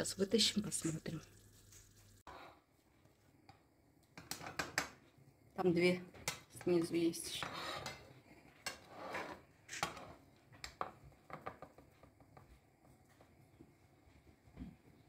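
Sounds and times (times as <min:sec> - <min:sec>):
metal spoon scraping a plate: 0:07.3 - 0:10.1.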